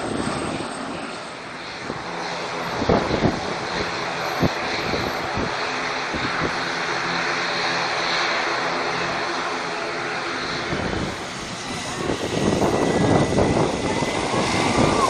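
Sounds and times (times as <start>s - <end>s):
aircraft engine drone: 0.0s - 15.0s
wind noise on microphone: 1.7s - 6.7s, 10.5s - 15.0s.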